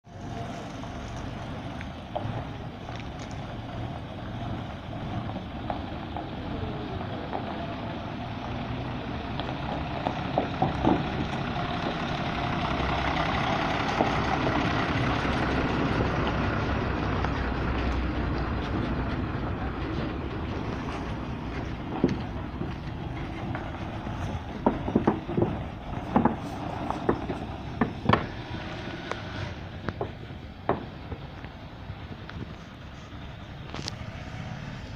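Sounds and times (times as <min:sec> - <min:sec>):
bus diesel engine droning: 0:00.0 - 0:34.9
sharp clicks and knocks: 0:24.5 - 0:28.4.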